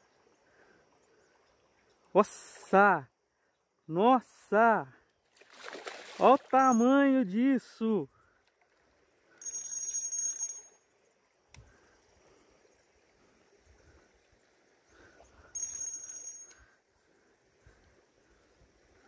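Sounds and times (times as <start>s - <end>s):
fishing reel whirring: 9.4s - 10.8s, 15.6s - 16.7s.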